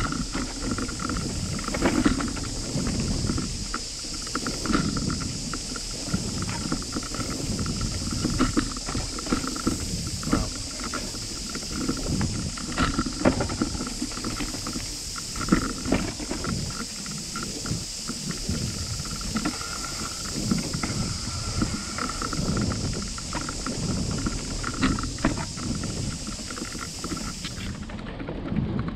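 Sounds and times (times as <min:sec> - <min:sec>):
bicycle knocking and rattling: 0:00.0 - 0:28.9
bicycle tyres rumbling on dirt: 0:00.0 - 0:28.9
wind on microphone: 0:00.0 - 0:28.9.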